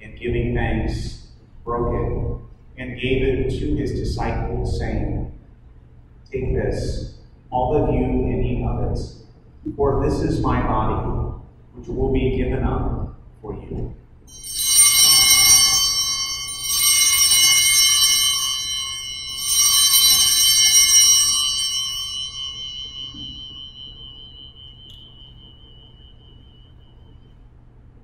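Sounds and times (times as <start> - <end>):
altar bells jangling: 14.3 - 27.3.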